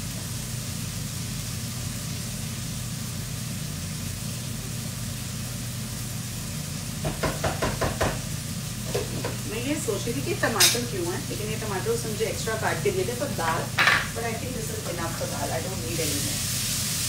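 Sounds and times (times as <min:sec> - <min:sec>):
faint sizzling: 0:00.0 - 0:17.0
kitchen fan humming: 0:00.0 - 0:17.0
spatula knocking and scraping pan: 0:07.0 - 0:08.3, 0:08.9 - 0:09.4, 0:13.4 - 0:14.2.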